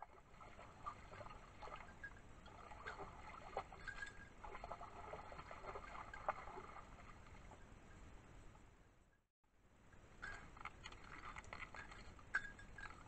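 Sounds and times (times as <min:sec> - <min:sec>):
dog paws splashing in water: 0:00.0 - 0:07.6, 0:10.2 - 0:13.0
stream trickling: 0:00.0 - 0:08.1, 0:09.9 - 0:13.0.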